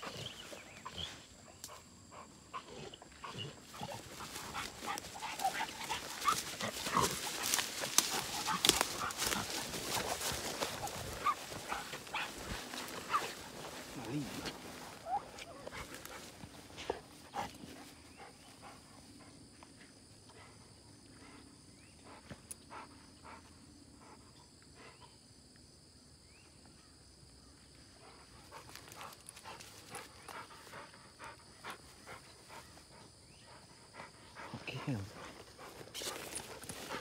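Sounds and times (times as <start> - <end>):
distant dogs barking: 0.0 - 25.2.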